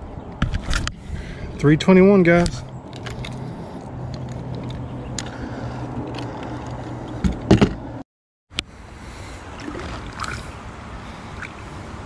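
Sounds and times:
fish splashing: 9.4s - 11.6s
water sloshing beside hull: 9.6s - 10.6s.

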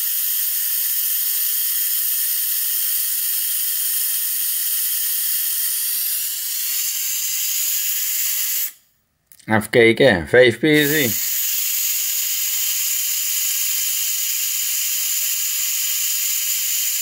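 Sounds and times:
air hissing from tyre valve: 0.0s - 8.9s, 10.8s - 17.0s.

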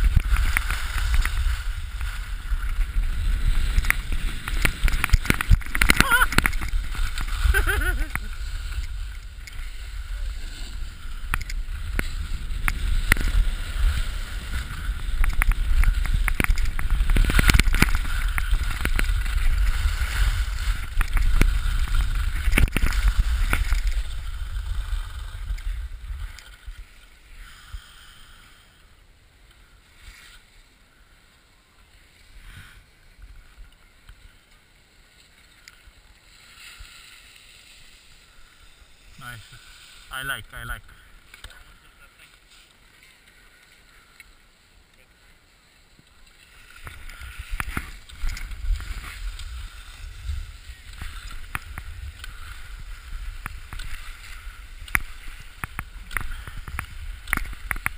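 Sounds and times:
wind rumbling on microphone: 0.0s - 29.0s, 46.2s - 57.9s
skis scraping on hard snow: 0.0s - 57.9s.

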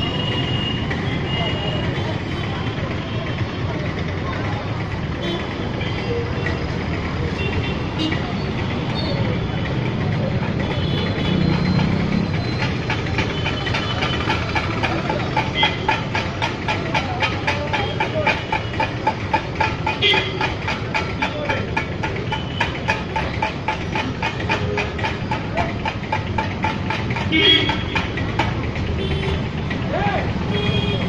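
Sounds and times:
engine running with ticking beat: 0.0s - 31.0s.

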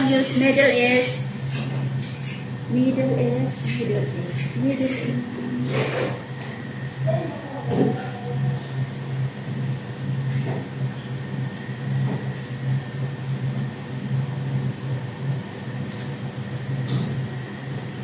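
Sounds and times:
electrical hum of appliance: 0.0s - 18.0s.

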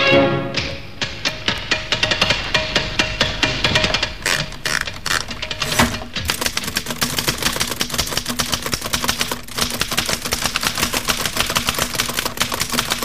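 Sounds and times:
typewriter typing fast: 3.8s - 13.0s.

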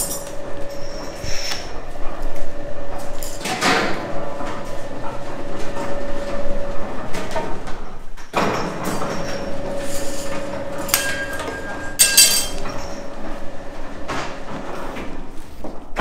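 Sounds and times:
steady hum: 0.0s - 7.2s
metallic clink: 10.9s - 12.6s
tools and candy clattering: 10.9s - 12.9s.

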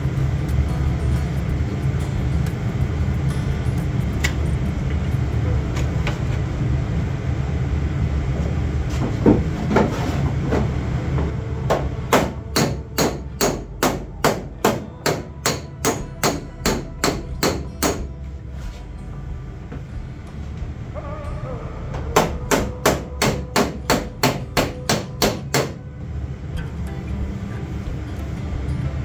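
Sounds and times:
steady low hum: 0.0s - 29.0s
hammer striking metal panel: 11.7s - 18.1s, 22.2s - 25.8s.

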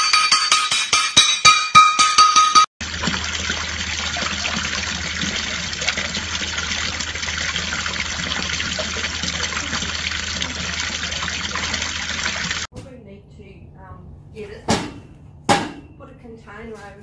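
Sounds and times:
fountain water splashing into basin: 2.8s - 12.7s.

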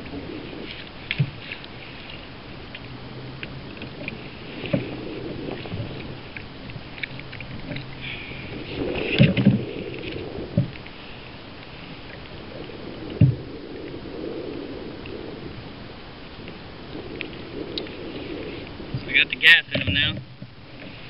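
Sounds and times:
dull knocks against kayak hull: 19.7s - 20.5s.

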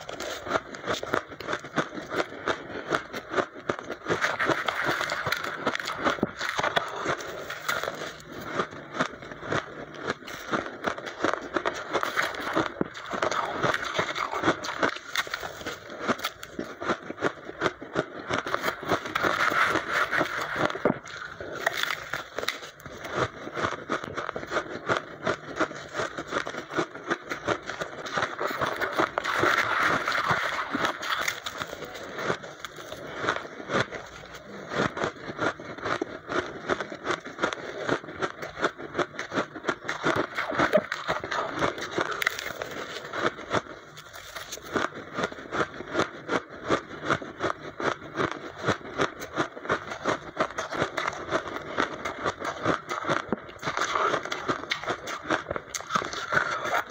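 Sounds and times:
ice being chewed: 0.0s - 56.9s
spoon scraping crushed ice: 18.5s - 22.8s.

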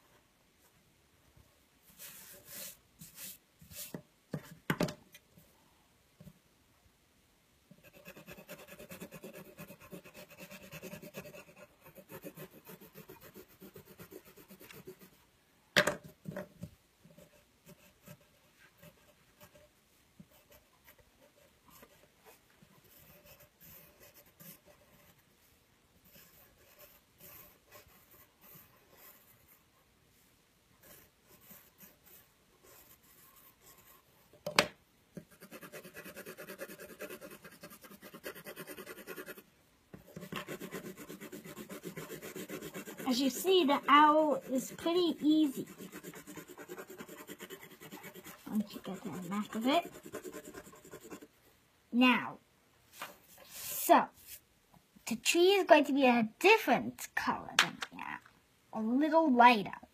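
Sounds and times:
pencil scratching on paper: 1.9s - 4.6s, 7.7s - 15.2s, 17.0s - 25.2s, 26.0s - 29.8s, 30.8s - 34.1s, 35.2s - 51.4s, 53.0s - 54.4s.

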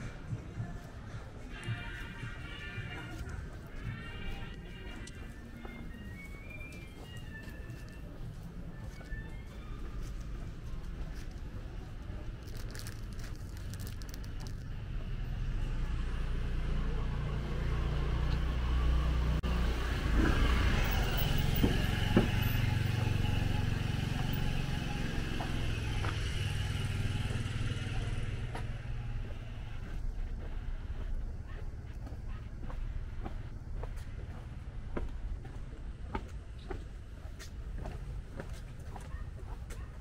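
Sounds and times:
vehicle engine passing: 9.8s - 31.0s.

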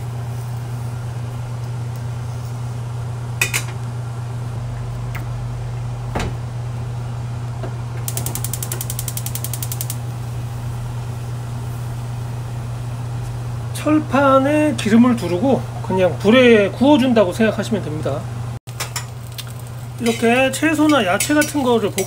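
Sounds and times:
steady low hum: 0.0s - 22.0s
tongs scraping hot steel: 8.1s - 10.0s, 18.8s - 22.0s.

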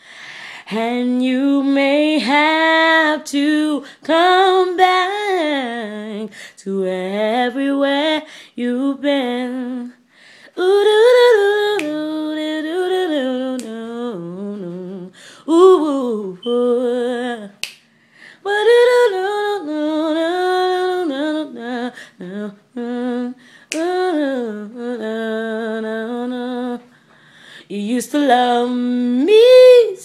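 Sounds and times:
breaths: 0.0s - 0.7s, 6.3s - 6.6s, 8.3s - 8.6s, 10.0s - 10.6s, 15.1s - 15.5s, 17.9s - 18.4s, 23.4s - 23.7s, 26.9s - 27.7s
woman singing a cappella: 0.0s - 30.0s.

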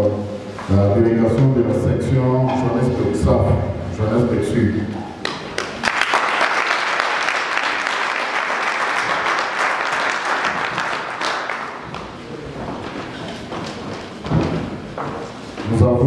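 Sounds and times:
audience applauding: 5.2s - 12.3s.

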